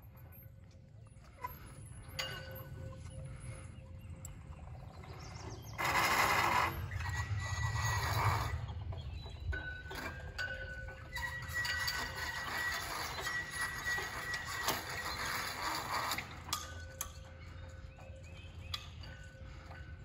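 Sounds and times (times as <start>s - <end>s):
low rumble: 2.9s - 11.5s
rope squeaking through pulley: 5.1s - 17.0s
metal clanking against pole: 5.8s - 17.4s.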